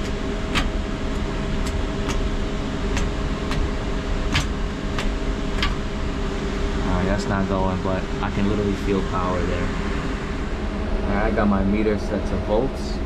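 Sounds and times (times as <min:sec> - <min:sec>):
refrigerator fans humming: 0:00.0 - 0:13.0.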